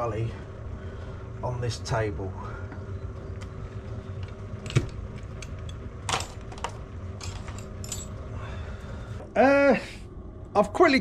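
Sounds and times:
low steady hum: 0.0s - 11.0s
metal parts clinking: 5.7s - 8.2s.

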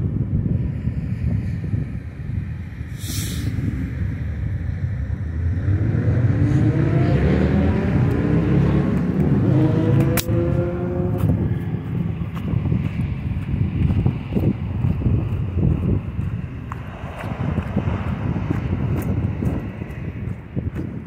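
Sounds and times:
low rumble: 0.0s - 21.0s
car engine accelerating: 3.5s - 21.0s
sharp click: 10.0s - 10.4s.

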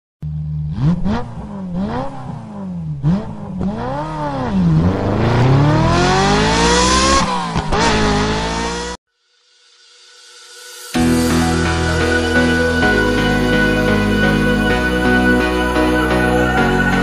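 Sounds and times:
engine revving: 0.2s - 9.0s.

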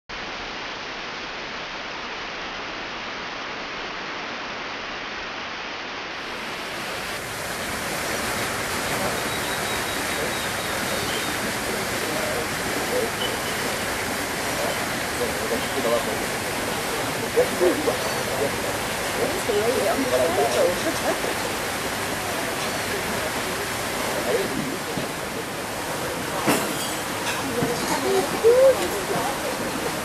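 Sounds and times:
running water from water feature: 6.1s - 30.0s.

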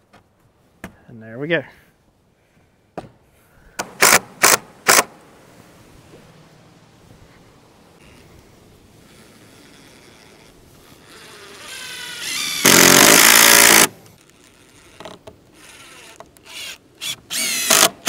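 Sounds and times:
power tool cutting wood: 11.2s - 13.9s, 15.6s - 18.0s.

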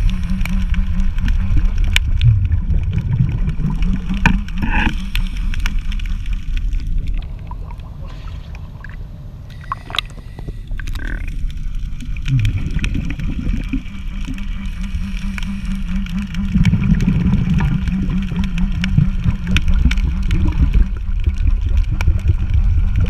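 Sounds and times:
engine running at low speed: 0.0s - 2.8s.

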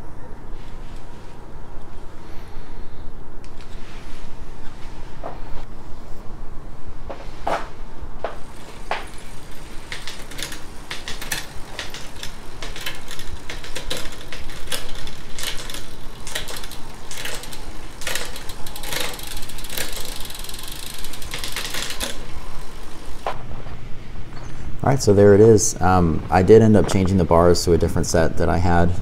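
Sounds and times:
bicycle chain rattle: 8.4s - 23.3s
sharp derailleur clicks: 8.5s - 23.3s.

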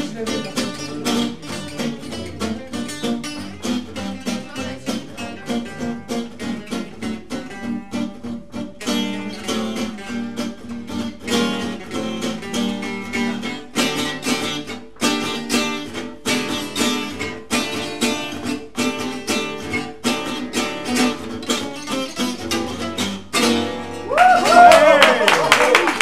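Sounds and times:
acoustic guitar duet: 0.0s - 26.0s
people whooping and cheering: 24.0s - 26.0s.

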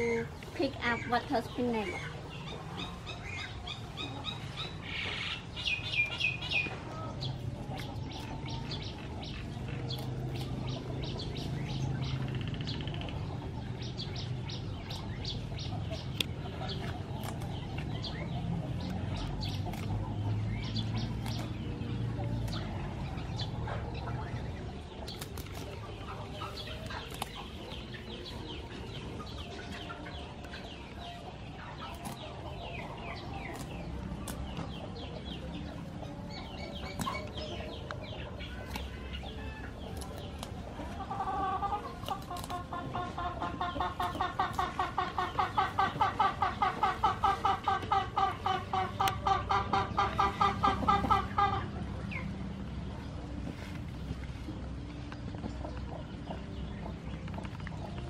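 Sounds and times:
chickens clucking: 0.0s - 58.0s
small birds chirping: 0.0s - 58.0s
plant stems snapping: 17.2s - 17.7s, 25.1s - 25.7s, 42.0s - 42.6s.

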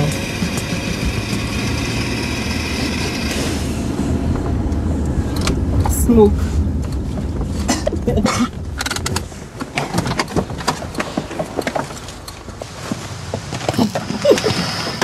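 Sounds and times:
car rumble: 0.0s - 15.0s
rattling and knocking: 6.7s - 12.7s.

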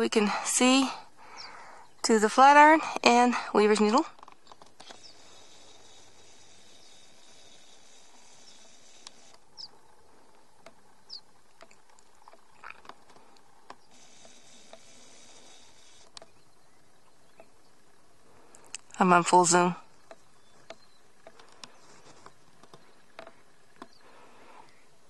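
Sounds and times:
soft hiss: 0.0s - 25.0s
small clicks: 3.7s - 16.4s, 19.9s - 24.0s.

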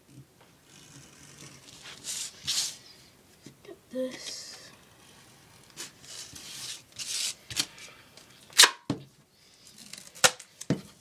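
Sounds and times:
duct tape ripping off roll: 8.6s - 8.9s, 9.8s - 10.6s.

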